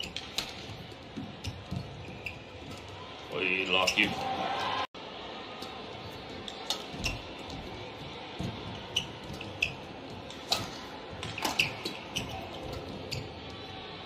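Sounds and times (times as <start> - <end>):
shoe squeaks on court: 1.4 - 2.8, 3.7 - 4.4, 8.9 - 9.9, 11.4 - 13.4
racket hitting shuttlecock: 10.3 - 12.4.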